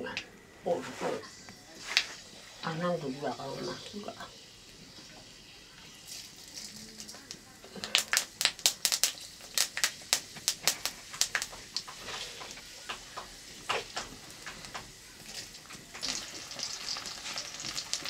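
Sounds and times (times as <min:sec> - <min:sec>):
food sizzling in oil: 0:01.1 - 0:18.0
hot oil popping and crackling: 0:03.9 - 0:18.0.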